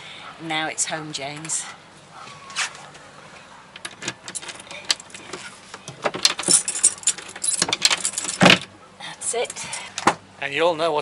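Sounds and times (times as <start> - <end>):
keys jangling: 3.8 - 5.4, 6.2 - 8.6.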